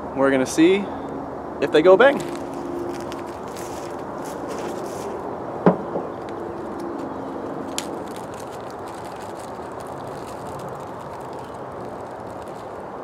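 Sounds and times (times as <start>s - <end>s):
outdoor background noise with hum: 0.0s - 13.0s
sharp knocks: 5.6s - 6.2s.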